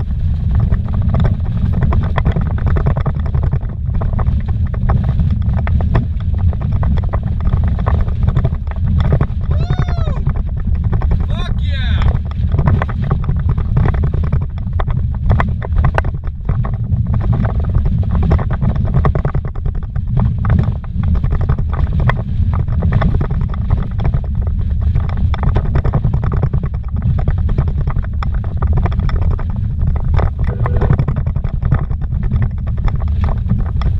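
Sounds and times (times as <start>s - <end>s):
car engine and tyres rumbling: 0.0s - 33.9s
car rattling and knocking: 10.2s - 33.9s.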